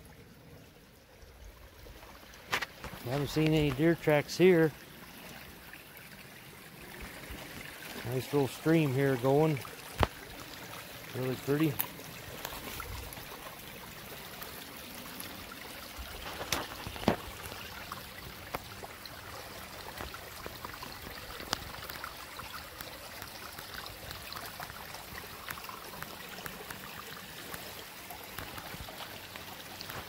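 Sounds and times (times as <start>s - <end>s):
stream trickling over rocks: 0.0s - 30.0s.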